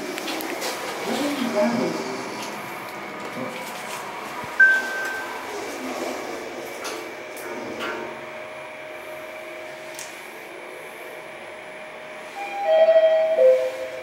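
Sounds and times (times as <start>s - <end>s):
lift running noise: 0.0s - 14.0s
lift chime tone: 4.6s - 5.4s, 12.4s - 14.0s.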